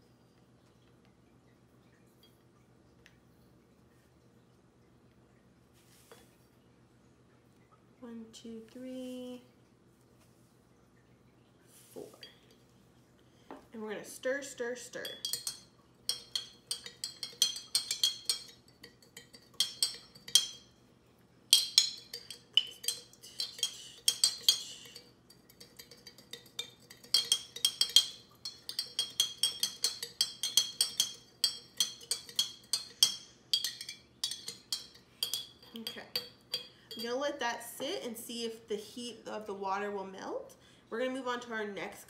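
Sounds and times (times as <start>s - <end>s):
spoon clinking against glass: 15.0s - 20.7s, 21.5s - 37.2s.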